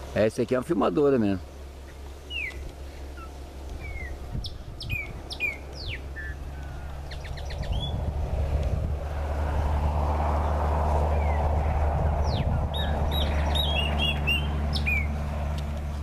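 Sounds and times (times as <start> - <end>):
low steady hum: 0.0 - 16.0
bird singing: 1.2 - 8.1, 10.4 - 15.2
rushing noise: 7.0 - 14.7.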